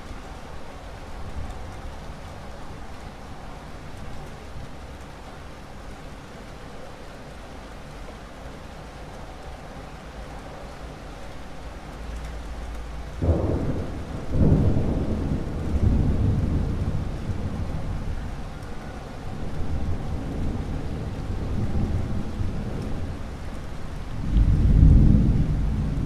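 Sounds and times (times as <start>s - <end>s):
steady rain: 0.0s - 26.0s
rolling thunder: 13.2s - 23.4s, 24.1s - 26.0s.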